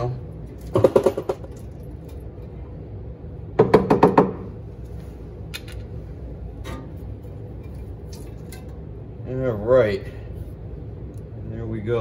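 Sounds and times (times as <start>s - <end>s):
knocks on metal cover: 0.7s - 1.5s, 3.6s - 4.4s.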